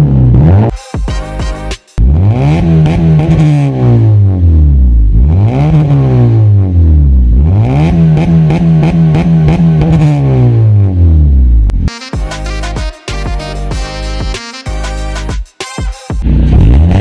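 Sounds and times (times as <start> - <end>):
car engine revving: 0.0 - 0.7, 2.0 - 11.9, 16.2 - 17.0.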